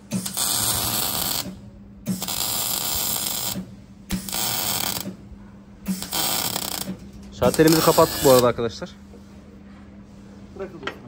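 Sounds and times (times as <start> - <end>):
steady hum: 0.0 - 11.0
arc welding crackling and hissing: 0.2 - 5.2, 5.9 - 8.7.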